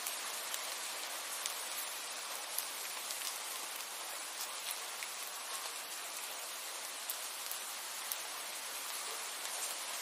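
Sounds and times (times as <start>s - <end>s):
raindrop ticks: 0.0s - 5.8s, 7.1s - 8.3s
steady rain hiss: 0.0s - 10.0s.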